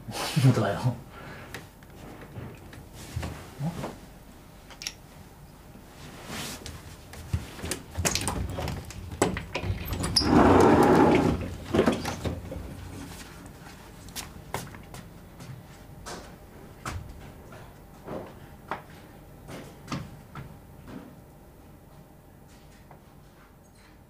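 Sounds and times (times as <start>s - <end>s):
glass door sliding: 9.4s - 13.0s.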